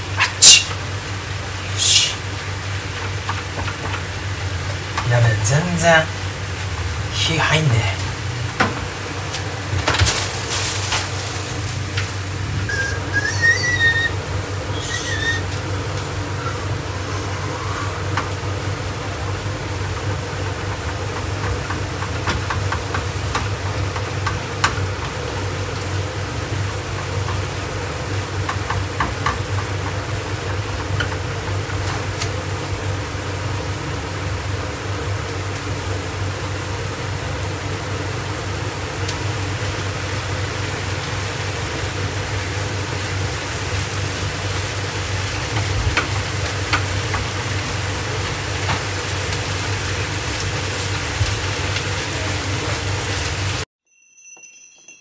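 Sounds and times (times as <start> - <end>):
low mechanical hum: 0.0 - 53.6.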